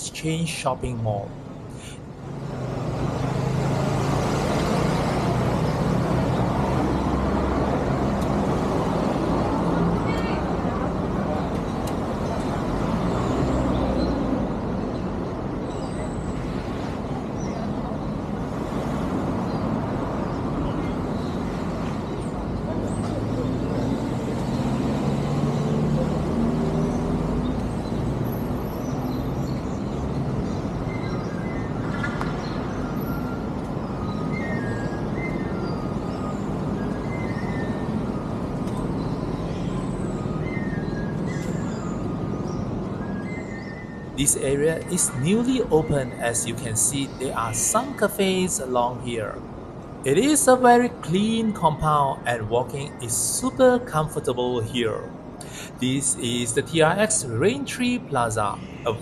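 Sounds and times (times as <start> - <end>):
low traffic rumble: 0.0 - 59.0
tyre and road noise: 0.0 - 59.0
vehicle engine hum: 44.1 - 59.0.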